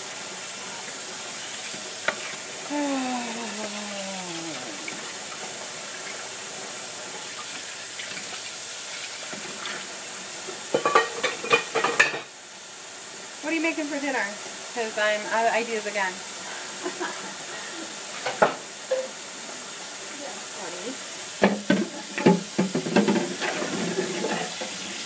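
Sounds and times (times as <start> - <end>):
falling voice-like tone: 2.7 - 5.0
tap water running into sink: 4.5 - 12.3, 21.4 - 25.0
dishes clinking: 10.8 - 12.3, 18.2 - 19.1.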